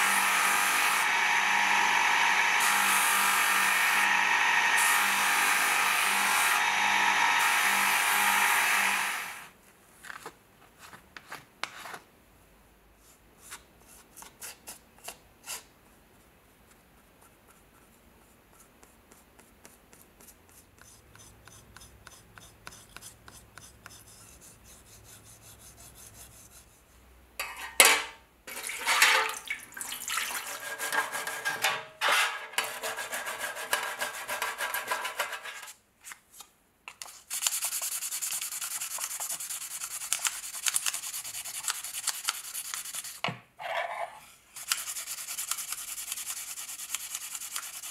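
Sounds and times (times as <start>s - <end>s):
hands rubbing knife blade: 30.4s - 35.8s.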